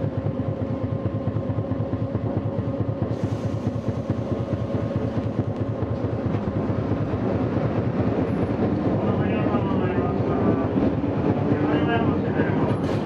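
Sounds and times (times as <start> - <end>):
constant hum: 0.0 - 13.0
streetcar motors and wheels rumbling: 0.0 - 13.0
hiss: 3.1 - 4.2.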